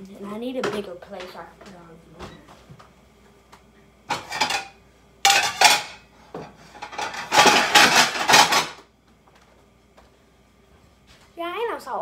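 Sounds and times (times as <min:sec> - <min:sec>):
plates clattering: 0:04.1 - 0:08.8.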